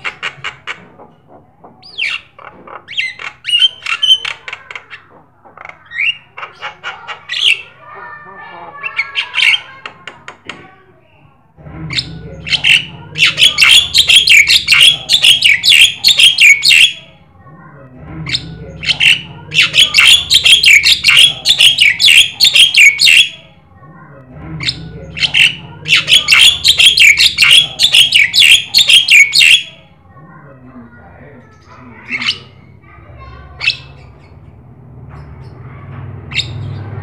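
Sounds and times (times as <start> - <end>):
myna calling: 11.9 - 17.1, 24.6 - 29.8.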